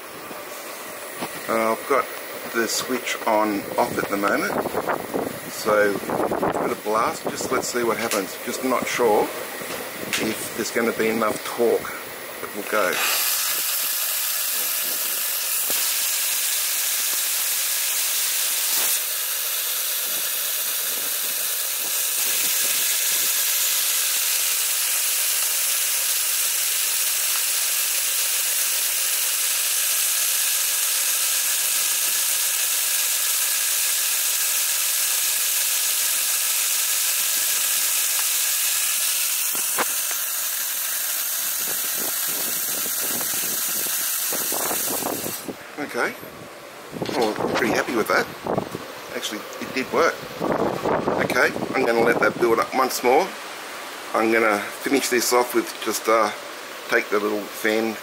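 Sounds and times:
steam hissing: 0.0 - 45.8
sharp click: 8.0 - 8.3.

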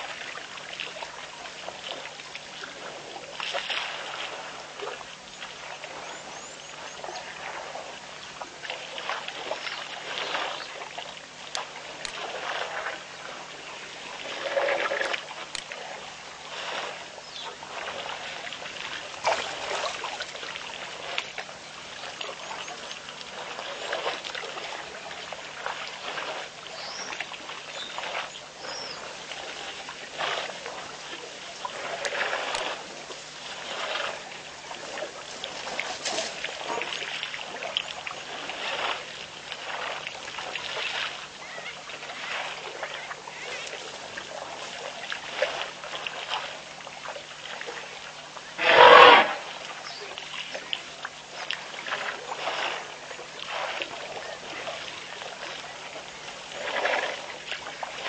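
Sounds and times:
water splashing and trickling: 0.0 - 58.0.

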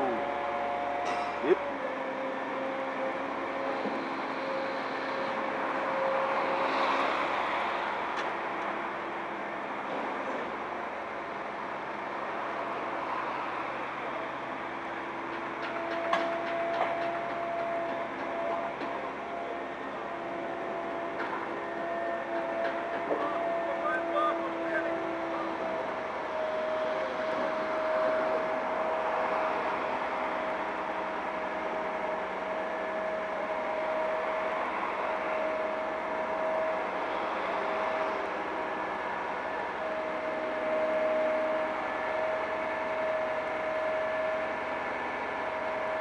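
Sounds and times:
crane engine running: 0.0 - 46.0
diesel engine running: 22.4 - 26.3.

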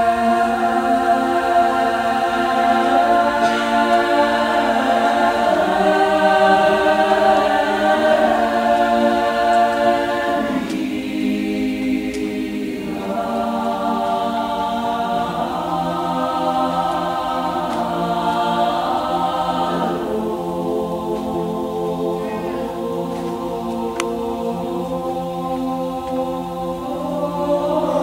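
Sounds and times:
choir singing a cappella chant: 0.0 - 28.0.

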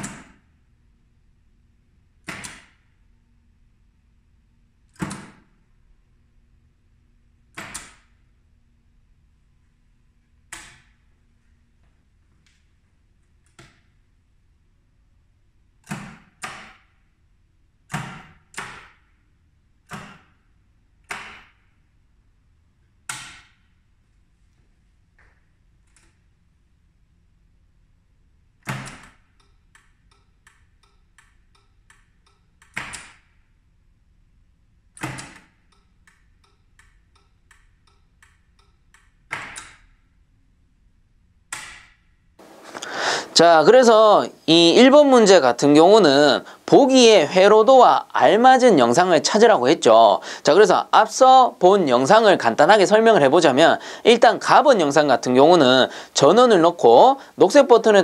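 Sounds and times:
flicker relay ticking: 28.7 - 34.2, 34.8 - 40.2, 41.4 - 58.0.

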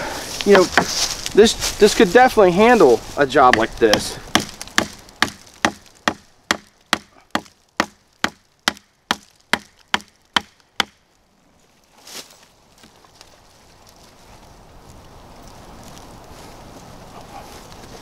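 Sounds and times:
knife chopping into wood: 3.5 - 11.0.

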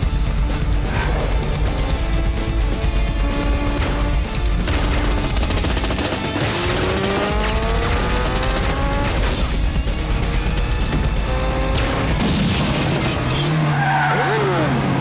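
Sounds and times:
film score music: 0.0 - 15.0
motorcycle engine revving: 0.6 - 12.3.

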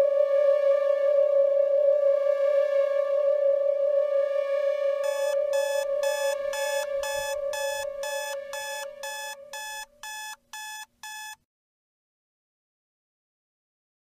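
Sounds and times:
electronic alarm clock beeping: 5.0 - 11.4
held electronic tone: 5.0 - 11.4.

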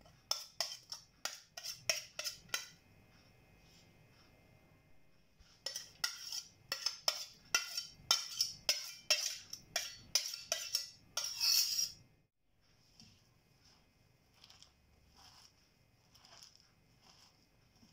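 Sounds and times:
clinks against a steel bowl: 5.7 - 12.0.

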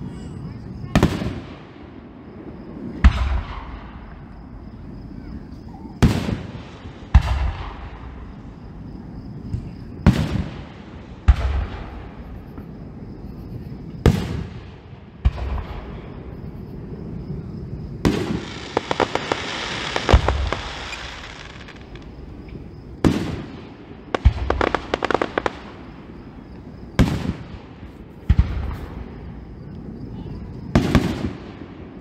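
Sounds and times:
fireworks booming: 0.8 - 32.0
fireworks crackling: 18.0 - 29.2.

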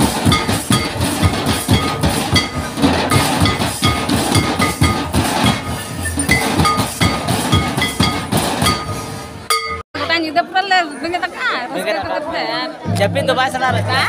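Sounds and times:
drums beaten in fast rhythm: 0.0 - 9.8, 12.9 - 14.0.

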